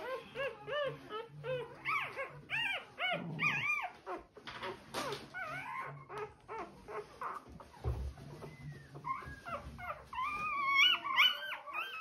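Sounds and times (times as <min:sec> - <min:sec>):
puppy crying: 0:00.0 - 0:04.4, 0:05.0 - 0:12.0.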